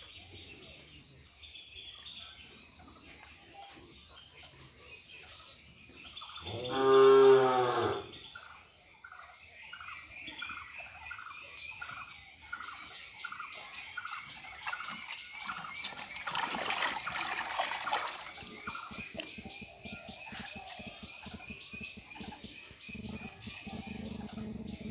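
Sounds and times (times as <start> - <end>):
cow mooing: 6.5 - 8.1
cow slurping from a bucket: 14.0 - 24.6.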